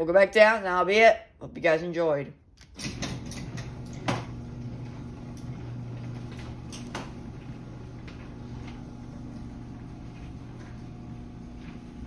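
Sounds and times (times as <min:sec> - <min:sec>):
garage door opener humming: 0:02.6 - 0:12.0.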